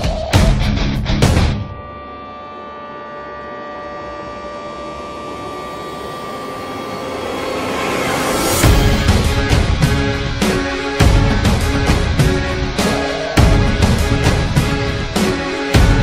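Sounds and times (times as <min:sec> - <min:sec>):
jet engine whine and rush: 0:03.5 - 0:10.8.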